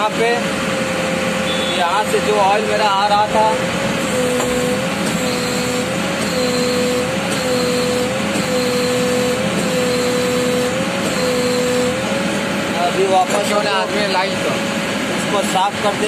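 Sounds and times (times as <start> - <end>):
backhoe engine whine: 0.4 - 16.0
repeating beep: 1.5 - 1.8, 5.2 - 12.0.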